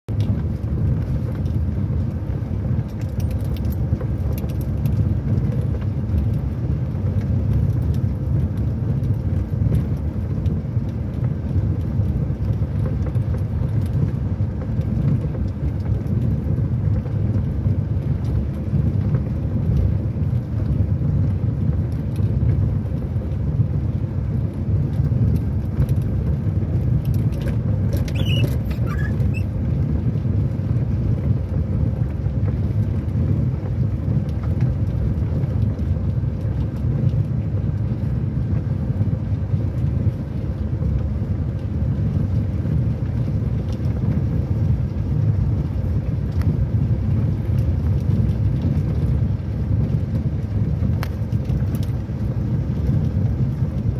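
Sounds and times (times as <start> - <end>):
car engine and tyres rumbling: 0.1 - 53.9.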